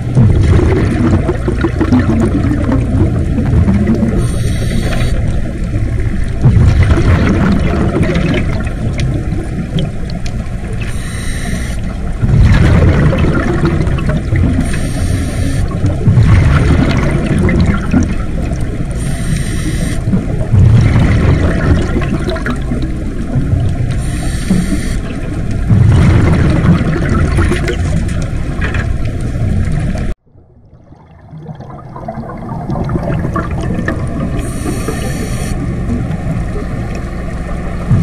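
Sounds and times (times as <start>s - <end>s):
gurgling exhaust bubbles: 0.0s - 10.8s, 12.1s - 15.0s, 15.6s - 19.1s, 19.8s - 23.9s, 24.5s - 28.7s, 29.3s - 38.0s
regulator inhale hiss: 4.2s - 5.2s, 10.9s - 11.9s, 14.6s - 15.7s, 19.0s - 20.0s, 24.0s - 25.0s, 34.4s - 35.6s.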